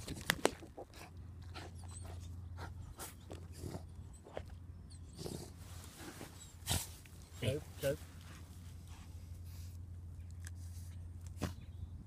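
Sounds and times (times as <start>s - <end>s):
low steady hum: 0.0s - 12.0s
dog digging and scraping: 5.1s - 11.8s.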